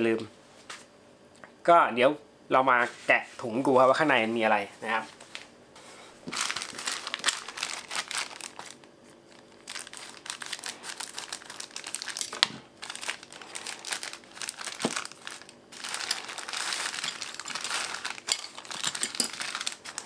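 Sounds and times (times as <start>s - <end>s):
plastic bag crinkling: 6.2s - 20.0s.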